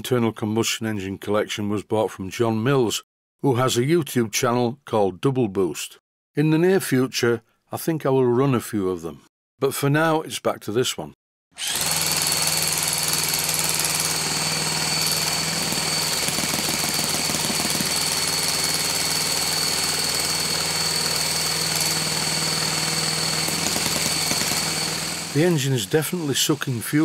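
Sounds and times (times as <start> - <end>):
electric starter whine: 11.6 - 27.0
model engine turning over: 13.4 - 25.6.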